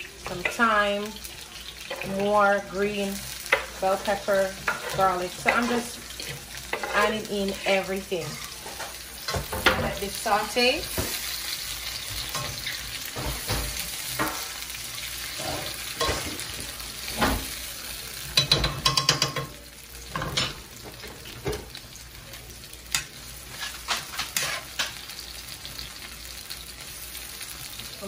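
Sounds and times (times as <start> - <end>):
vegetables sizzling in oil: 0.0 - 28.0
utensils scraping and tapping pan: 0.2 - 1.0, 1.6 - 14.6, 15.2 - 17.6, 18.3 - 21.8, 22.9 - 25.1.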